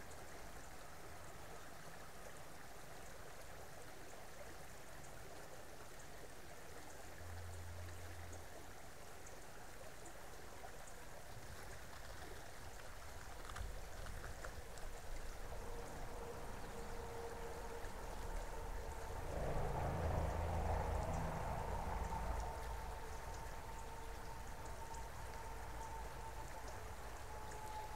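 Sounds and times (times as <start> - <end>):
creek water running: 0.0 - 27.9
low rumble: 14.9 - 27.8.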